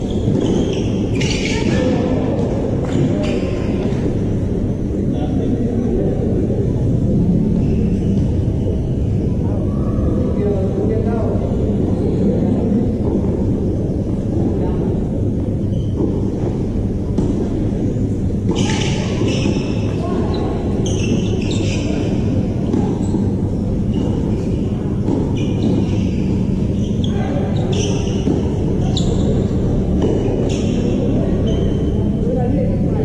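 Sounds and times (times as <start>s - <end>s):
balls bouncing on court: 0.0s - 4.1s, 15.4s - 31.9s
rackets hitting tennis balls: 0.1s - 1.7s, 12.8s - 31.9s.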